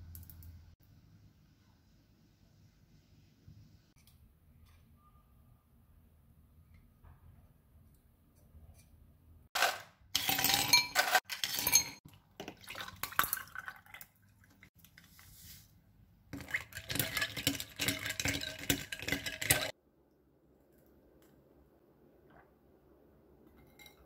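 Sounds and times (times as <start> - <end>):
ice cubes clinking in glass: 9.6 - 12.0
drink pouring and splashing: 12.0 - 14.7, 16.4 - 19.7.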